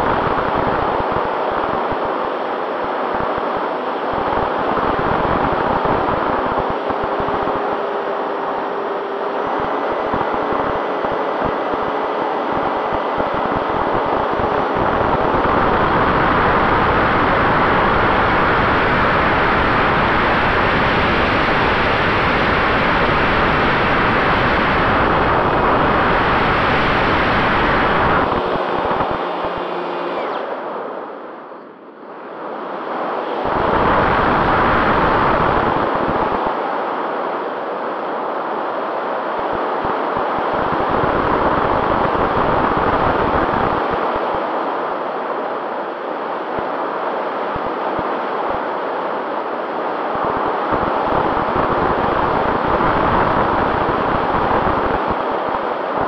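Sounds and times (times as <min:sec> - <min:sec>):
wind rushing over microphone: 0:09.4 - 0:31.2, 0:32.1 - 0:37.2, 0:49.9 - 0:56.0
electric motor whine: 0:25.3 - 0:30.8.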